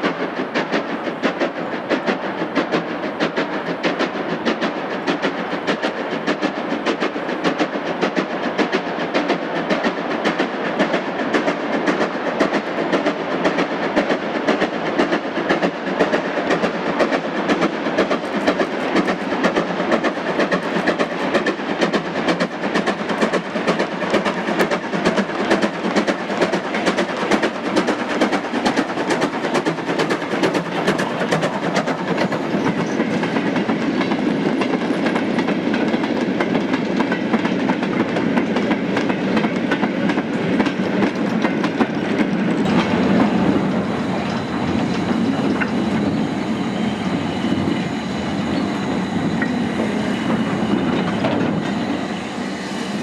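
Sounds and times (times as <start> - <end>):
steam locomotive exhaust chuffing: 0.0 - 53.0
wagon wheels clattering on rails: 4.6 - 47.9.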